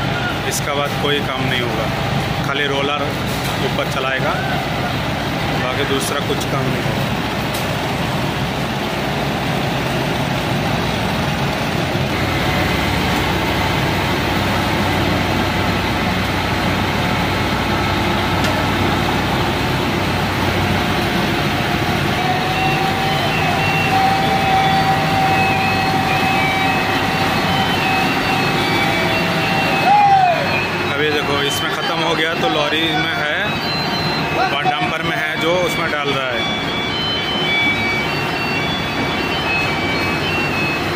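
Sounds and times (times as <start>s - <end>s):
diesel engine running: 0.0s - 40.9s
steady high whine: 0.0s - 40.9s
short repeated tones: 21.0s - 40.9s.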